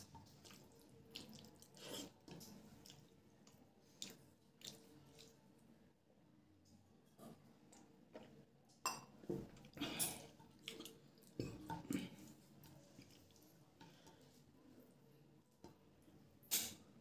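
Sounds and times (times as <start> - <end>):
fingers squishing rice and curry: 0.0 - 5.7.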